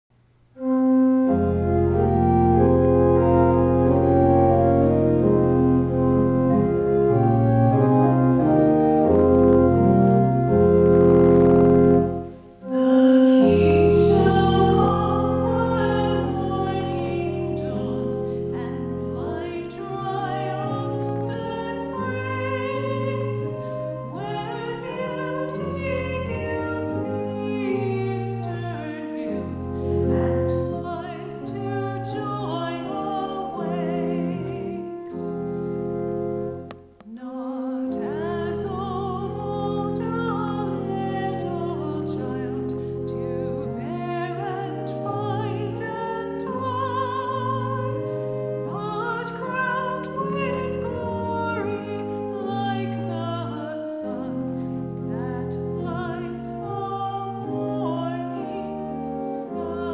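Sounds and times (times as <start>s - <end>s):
church organ playing chords: 0.6s - 59.9s
woman singing a hymn: 12.6s - 35.7s, 37.0s - 59.9s.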